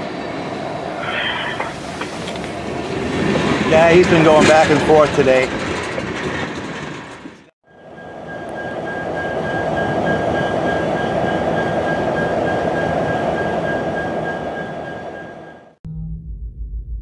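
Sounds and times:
diesel locomotive rumble: 0.0 - 12.5
tank cars rolling past: 0.1 - 10.5
thin high whine: 0.5 - 2.8.

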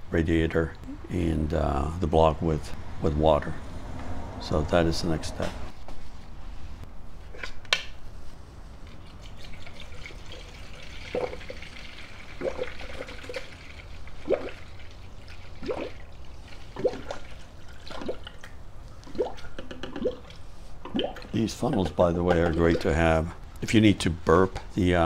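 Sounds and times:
liquid trickling into funnel: 8.8 - 23.2
bottle gurgling: 9.2 - 23.4.

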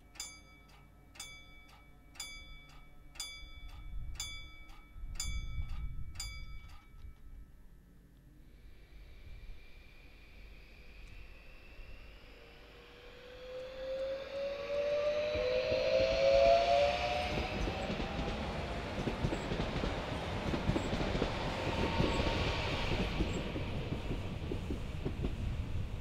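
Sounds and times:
electric train whine: 0.0 - 26.0
wheel and rail rumble: 12.9 - 26.0.

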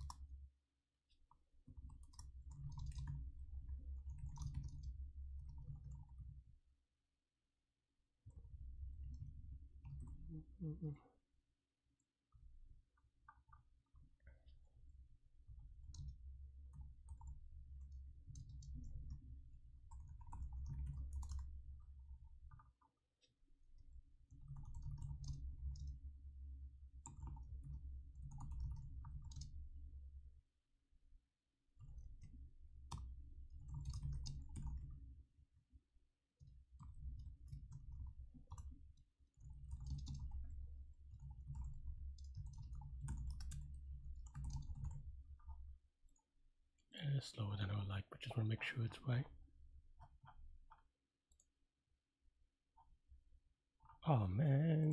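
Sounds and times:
keyboard typing: 1.8 - 3.2, 24.4 - 26.0, 27.0 - 29.5, 32.9 - 34.9, 39.4 - 40.5, 41.1 - 45.1.

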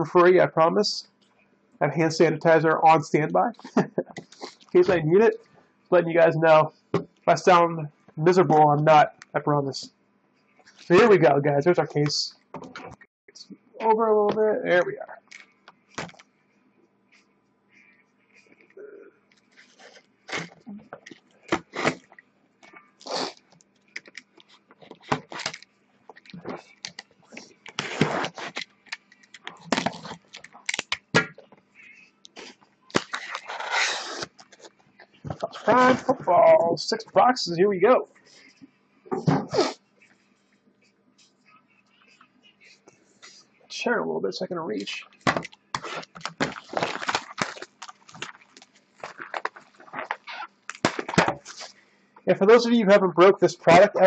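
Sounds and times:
boxes handled rustling: 45.2 - 51.8.

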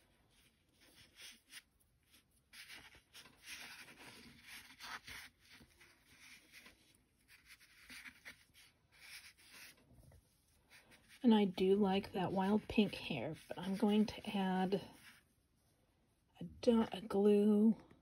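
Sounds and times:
rustling of yarn strands: 0.0 - 16.3.

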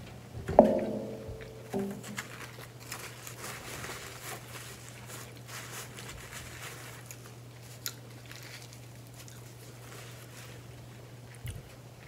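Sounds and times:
steady low hum: 0.0 - 2.9.

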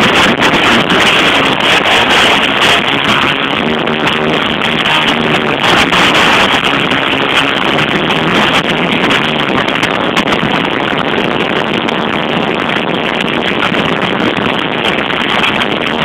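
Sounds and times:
live rock band playing: 0.0 - 10.6.

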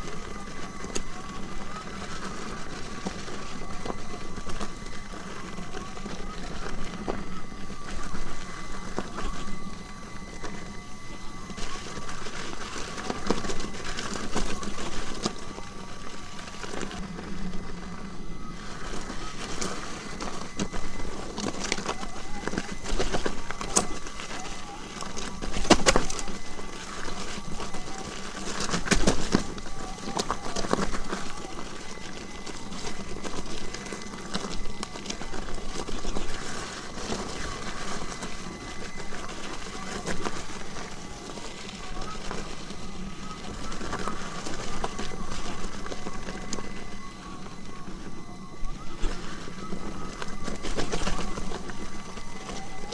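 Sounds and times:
hub motor whine: 0.0 - 52.9
tyres on loose gravel: 0.0 - 52.9
stones clicking and knocking: 18.6 - 48.2.

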